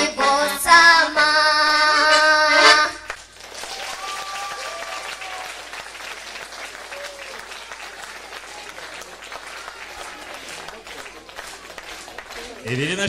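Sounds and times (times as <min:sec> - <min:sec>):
girl singing: 0:00.0 - 0:03.1
accordion: 0:00.0 - 0:03.2, 0:12.7 - 0:13.0
audience applause: 0:03.1 - 0:13.0.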